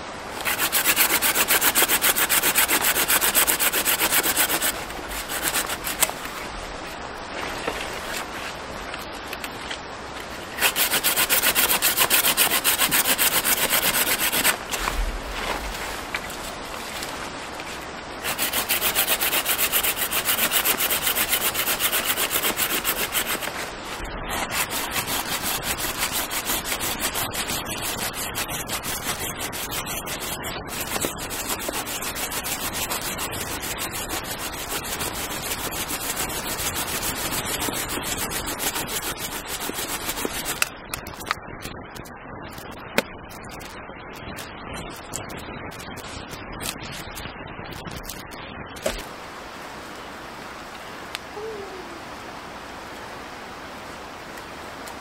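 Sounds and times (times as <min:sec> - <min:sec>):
hand saw cutting branch: 0:00.4 - 0:06.3, 0:10.6 - 0:14.9, 0:18.2 - 0:23.7, 0:24.3 - 0:40.7.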